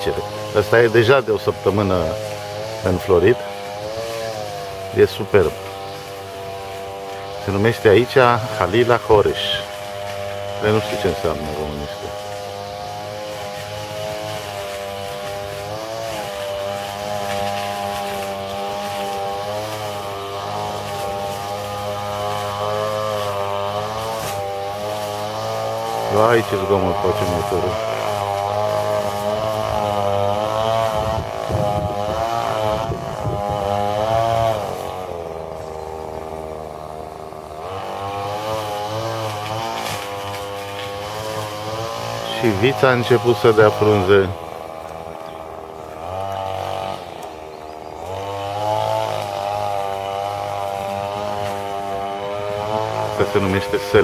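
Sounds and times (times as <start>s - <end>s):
weed cutter engine running: 0.0s - 54.0s.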